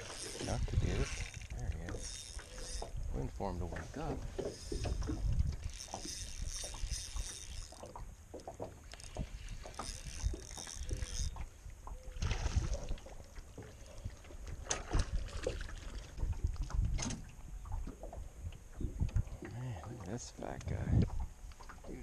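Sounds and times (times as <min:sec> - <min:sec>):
low wind rumble on microphone: 0:00.0 - 0:02.0, 0:02.7 - 0:06.9, 0:09.1 - 0:13.2, 0:13.8 - 0:19.6, 0:20.6 - 0:22.0
spinning reel reeling in: 0:00.0 - 0:03.2, 0:04.4 - 0:08.0, 0:08.9 - 0:11.5.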